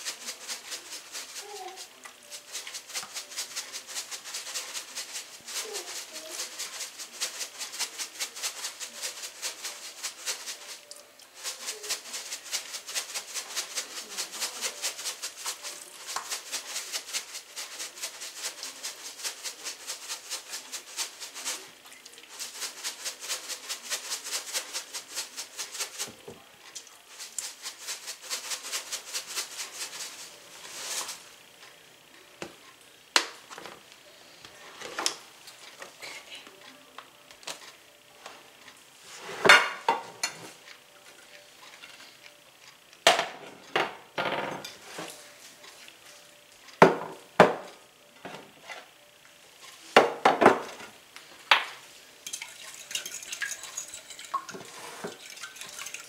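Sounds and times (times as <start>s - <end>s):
pepper shaker rattling: 0.0s - 31.6s, 51.7s - 56.0s.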